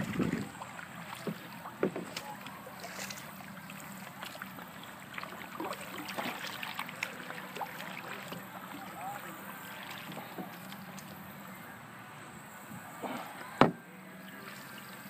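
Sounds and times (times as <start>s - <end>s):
water splashing and dripping: 0.0s - 11.4s
paddle blades dipping in water: 0.0s - 11.7s, 12.6s - 15.0s.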